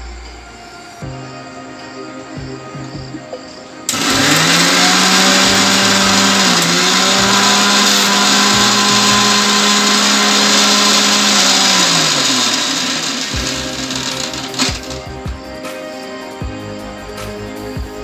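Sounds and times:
mixer grinder motor running: 0:03.9 - 0:15.2.

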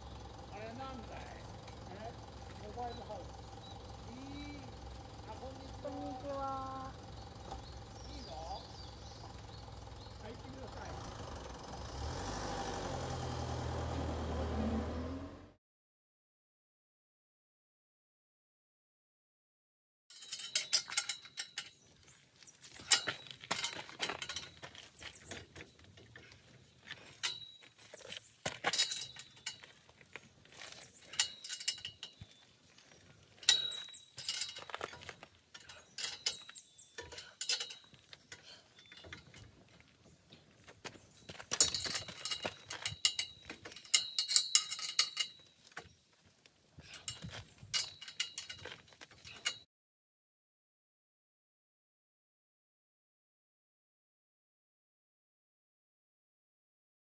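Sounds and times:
metal pipes and clamps clanking: 0:20.1 - 0:22.0, 0:22.7 - 0:29.9, 0:30.5 - 0:32.4, 0:33.3 - 0:39.7, 0:41.2 - 0:45.9, 0:46.8 - 0:49.6.

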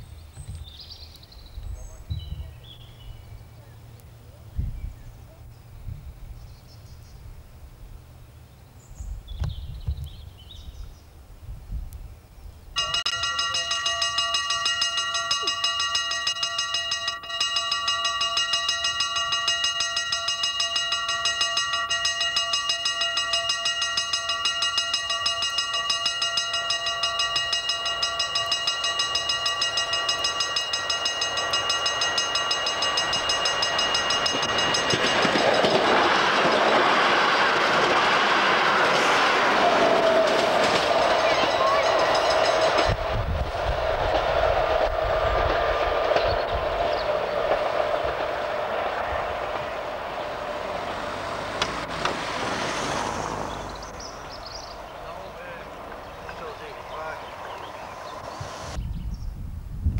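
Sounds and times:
level crossing warning bell: 0:12.8 - 0:58.3.

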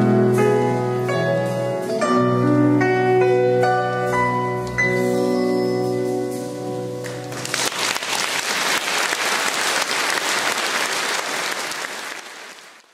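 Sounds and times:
audience applause: 0:07.0 - 0:12.9.

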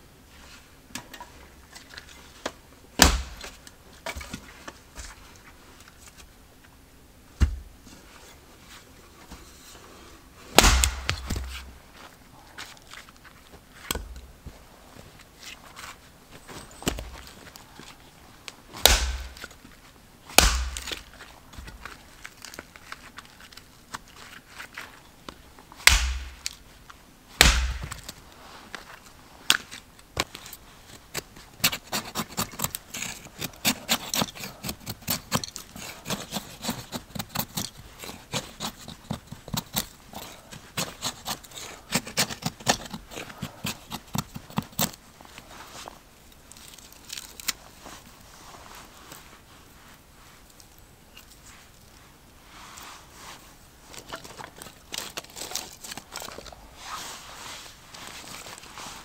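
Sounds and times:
hatchet chopping firewood: 0:03.0 - 0:04.3, 0:10.6 - 0:11.7, 0:18.8 - 0:19.5, 0:20.3 - 0:21.1, 0:25.8 - 0:26.6, 0:27.4 - 0:28.2, 0:31.1 - 0:45.0
kindling cracking and scraping: 0:10.6 - 0:49.4, 0:53.3 - 0:59.0.

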